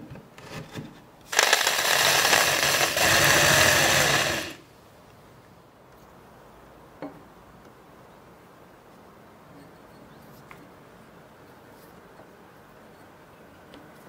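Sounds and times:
electric drill boring into wood: 1.3 - 4.6.

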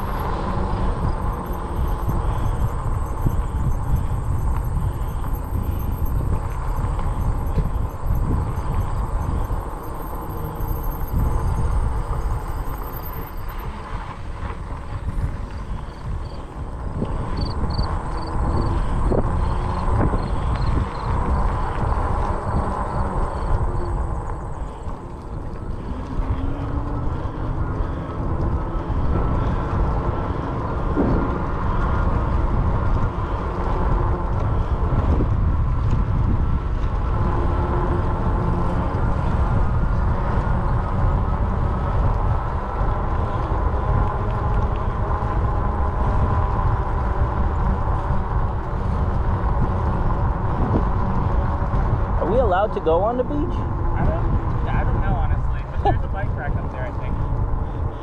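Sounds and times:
wind rumble on microphone: 0.0 - 58.0.

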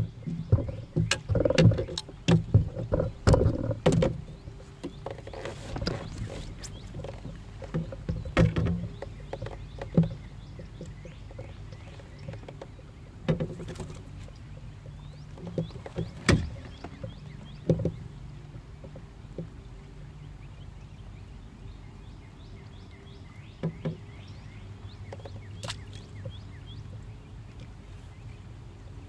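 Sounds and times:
low steady hum: 0.0 - 29.0
fishing gear knocking on plastic hull: 0.1 - 5.2.

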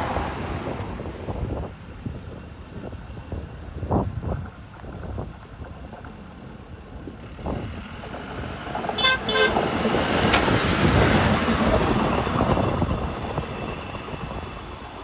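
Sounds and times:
truck passing over crossing: 7.0 - 13.4
truck horn toots: 9.0 - 9.7.

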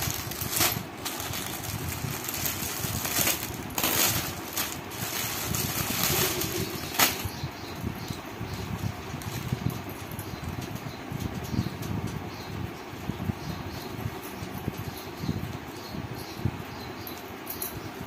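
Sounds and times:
plastic packaging rustling: 0.0 - 7.3.

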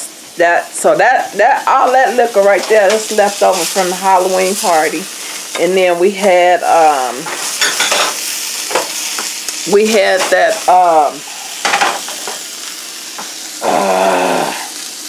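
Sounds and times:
sausage sizzling in a pan: 0.0 - 15.0
woman speaking: 0.4 - 7.3, 9.6 - 11.3.

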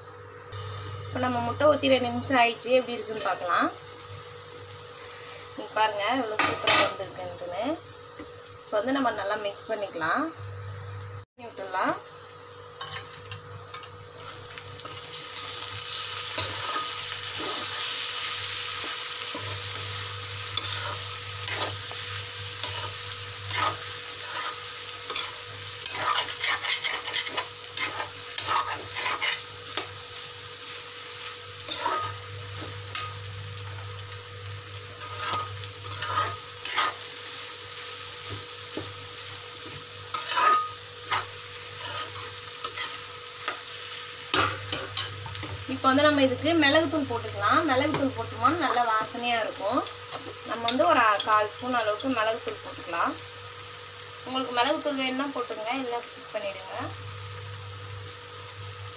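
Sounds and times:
frying sizzle: 0.0 - 58.9
spatula scraping metal pan: 20.6 - 21.8, 22.6 - 29.9, 31.7 - 32.2, 35.0 - 37.0, 40.1 - 43.6.

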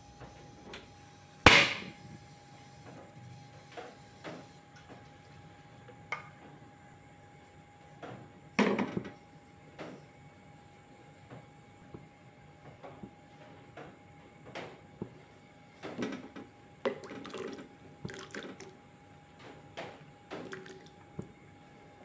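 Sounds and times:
gas stove igniter snap: 1.5 - 1.9.

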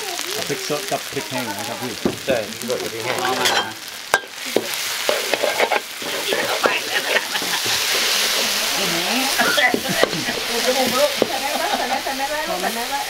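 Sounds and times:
chilies sizzling in hot oil: 0.0 - 13.0
metal spatula scraping a wok: 3.1 - 12.0
spatula clanking: 3.1 - 12.2.

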